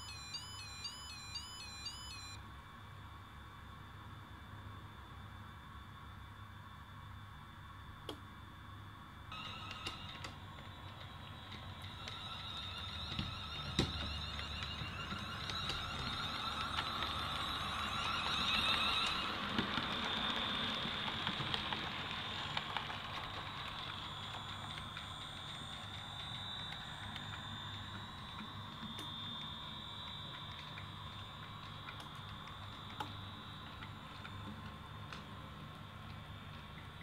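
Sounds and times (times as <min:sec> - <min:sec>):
model train motor whining: 0:09.3 - 0:34.3.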